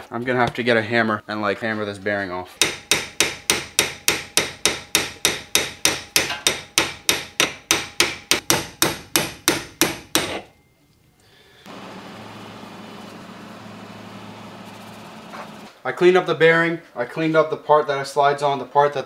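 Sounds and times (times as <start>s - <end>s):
hammer striking steel punch: 2.6s - 10.5s.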